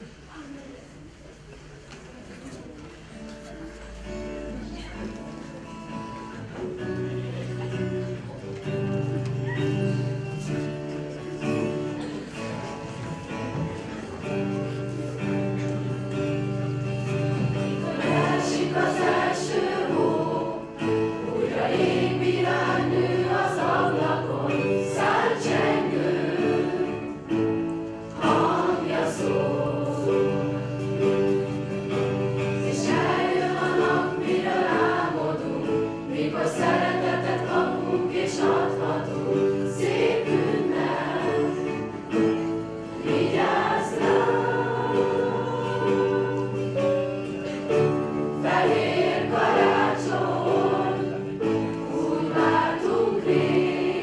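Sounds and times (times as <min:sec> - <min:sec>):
instrumental accompaniment: 0:05.3 - 0:54.0
young voices singing carol: 0:17.5 - 0:27.5, 0:28.1 - 0:31.3, 0:32.0 - 0:41.9, 0:43.0 - 0:47.0, 0:48.4 - 0:54.0.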